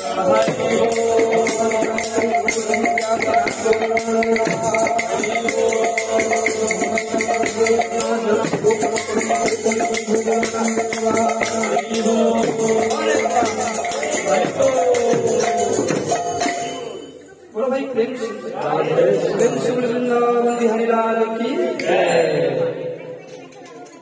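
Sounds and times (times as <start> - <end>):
quick steady percussion beat: 0.0 - 17.2.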